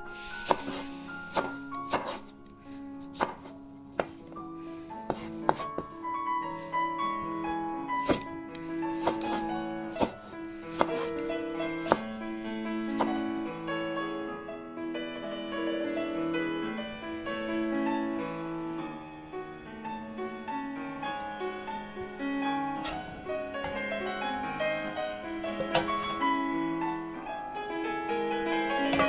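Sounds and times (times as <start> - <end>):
slow piano music: 0.0 - 29.0.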